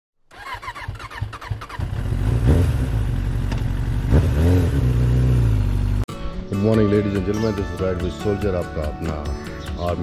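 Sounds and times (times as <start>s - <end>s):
motorcycle engine revving: 0.3s - 6.0s.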